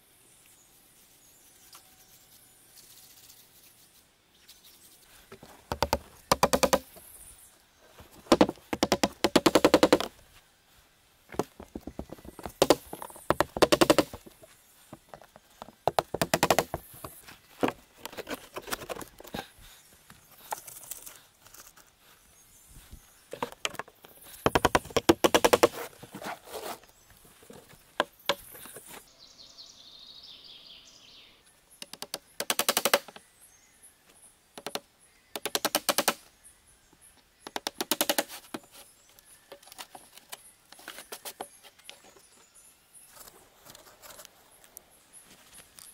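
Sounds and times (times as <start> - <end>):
hammer driving nails into wood: 5.7 - 7.0, 8.3 - 10.1, 11.3 - 14.3, 15.8 - 18.3, 24.4 - 25.8, 31.8 - 33.2, 35.4 - 36.2, 37.4 - 38.4.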